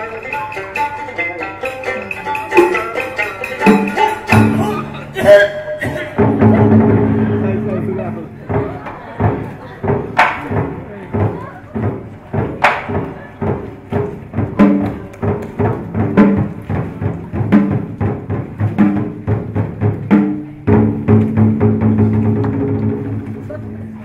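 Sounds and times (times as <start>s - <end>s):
held melody line: 0.0s - 8.3s
drum strikes and sharp knocks: 0.2s - 5.0s, 5.9s - 23.6s.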